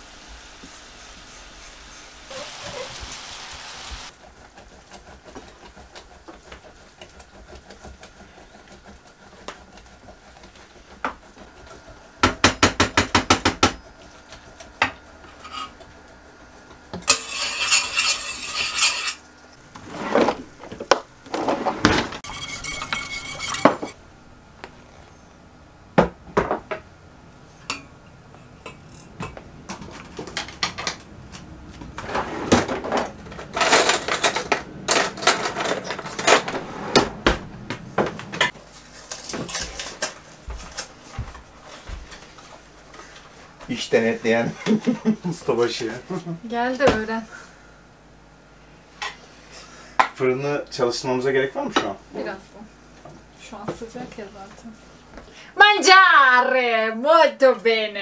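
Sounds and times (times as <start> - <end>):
utensils clinking on pots: 17.0 - 19.2, 22.2 - 24.0.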